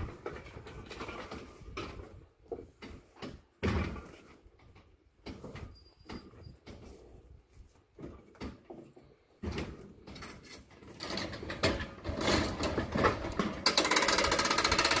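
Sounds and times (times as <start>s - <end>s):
metal gates and latches clanking: 2.8s - 6.9s, 9.4s - 15.0s.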